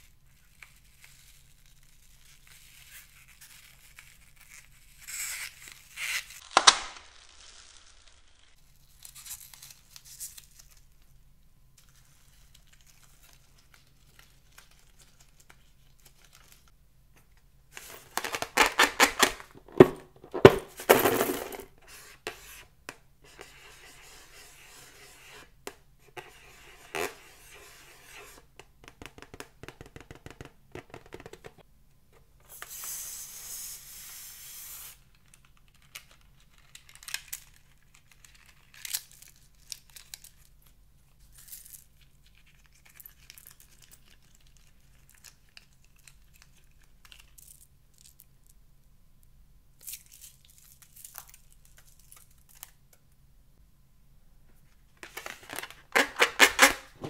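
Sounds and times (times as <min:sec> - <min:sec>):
balloon crackling in slime: 0:04.5 - 0:08.6
hiss: 0:32.6 - 0:35.0.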